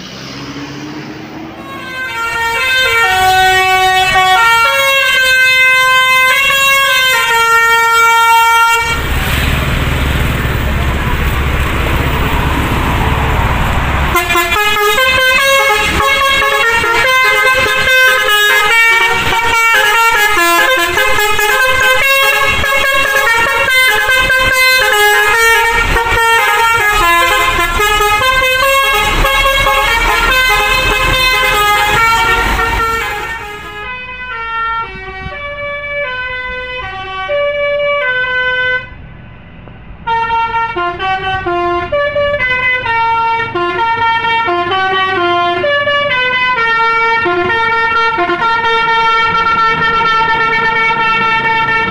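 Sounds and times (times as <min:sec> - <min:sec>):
rushing noise with low rumble: 0:00.0 - 0:04.5, 0:08.7 - 0:37.0
multi-tone air horn tune: 0:01.6 - 0:09.0, 0:14.1 - 0:39.0, 0:40.1 - 0:51.9.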